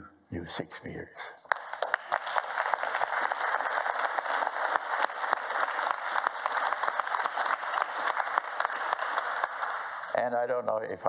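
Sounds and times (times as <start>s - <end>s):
audience applauding: 1.5s - 10.3s.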